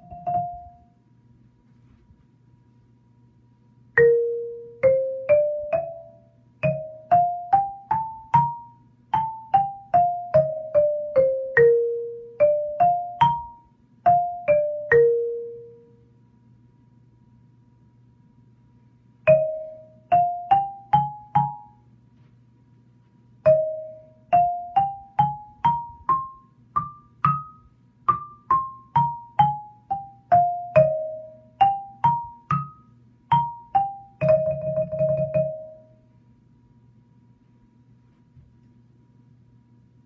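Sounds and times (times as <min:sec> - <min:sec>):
xylophone playing a scale: 0:00.0 - 0:00.9, 0:04.0 - 0:15.9, 0:19.3 - 0:21.8, 0:23.5 - 0:35.9.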